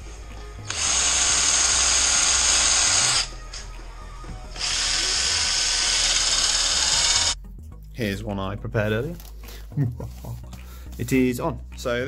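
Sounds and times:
cordless drill boring into steel: 0.6 - 3.6, 4.5 - 7.4.

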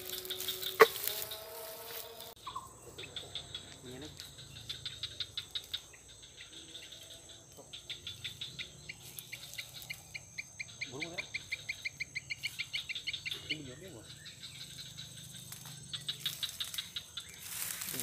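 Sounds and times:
high-pitched buzz: 0.0 - 2.4
insects chirping: 0.0 - 18.0.

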